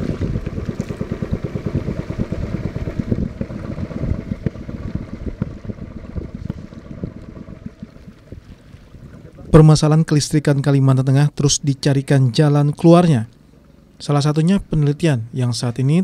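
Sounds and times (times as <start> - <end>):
wind buffeting microphone: 0.0 - 10.4.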